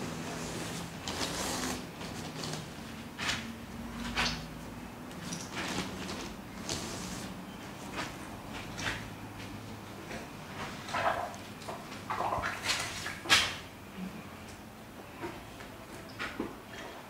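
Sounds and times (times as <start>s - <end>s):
rustling and scraping handling: 0.0s - 4.4s, 5.1s - 9.0s.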